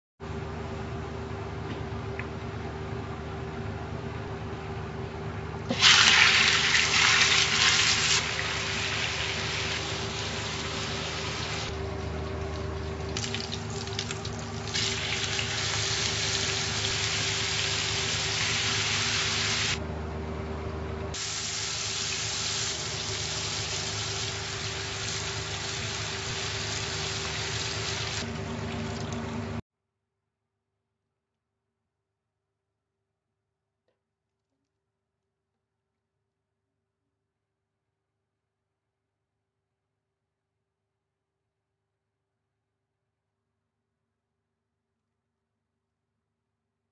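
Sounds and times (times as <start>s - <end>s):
food sizzling in hot oil: 5.7s - 11.7s, 13.2s - 19.8s, 21.2s - 28.3s
steady hum: 8.2s - 29.6s.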